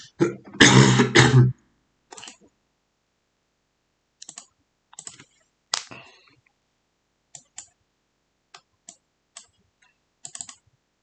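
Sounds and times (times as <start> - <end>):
mouse and keyboard clicks: 2.1 - 2.5, 4.2 - 5.9, 7.4 - 7.8, 10.2 - 10.6.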